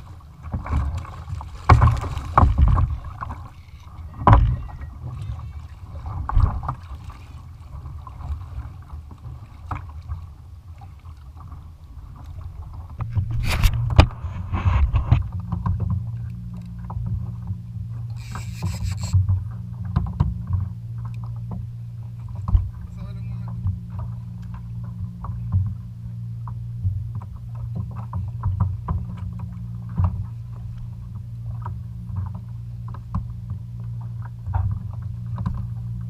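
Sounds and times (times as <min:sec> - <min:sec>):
low rumble: 0:00.0 - 0:36.0
steady low hum: 0:00.0 - 0:36.0
water against a hull: 0:00.0 - 0:36.0
knocks on a kayak: 0:01.6 - 0:03.1, 0:04.2 - 0:04.7, 0:22.4 - 0:22.7.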